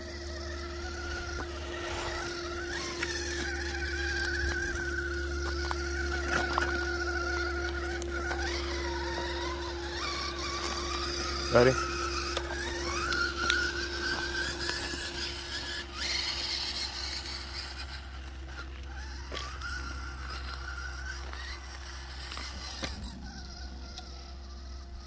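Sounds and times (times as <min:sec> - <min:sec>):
electric motor whining: 0:00.0 - 0:25.0.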